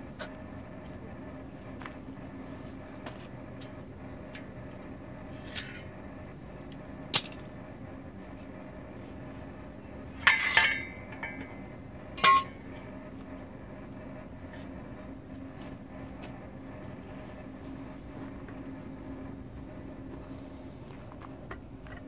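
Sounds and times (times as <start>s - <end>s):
steady low hum: 0.0s - 22.0s
metal clanking: 10.2s - 11.6s, 12.2s - 12.6s.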